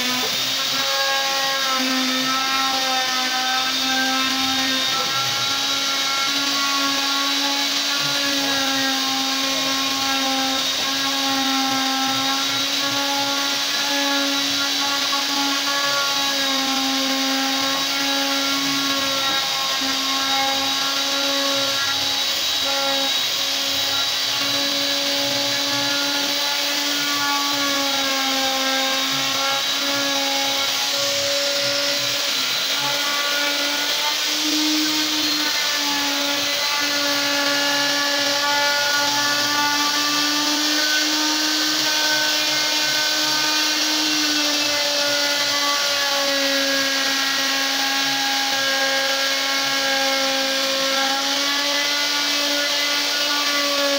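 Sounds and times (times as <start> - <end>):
router cutting wood: 0.0 - 53.9.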